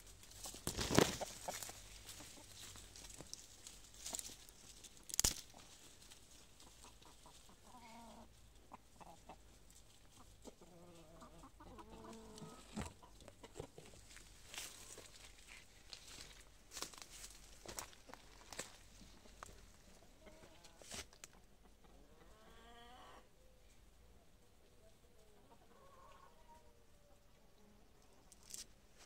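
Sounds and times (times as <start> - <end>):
leaves and twigs crackling: 0.0 - 7.6, 14.0 - 19.8
chickens clucking softly: 0.0 - 16.7, 17.3 - 28.8.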